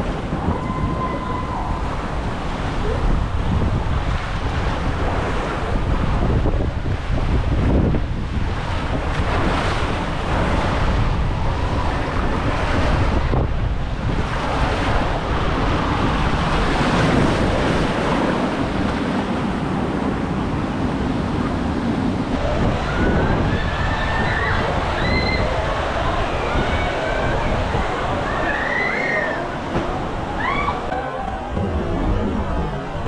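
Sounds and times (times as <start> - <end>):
wind on microphone: 0.0 - 33.0
water rushing on slide: 22.3 - 33.0.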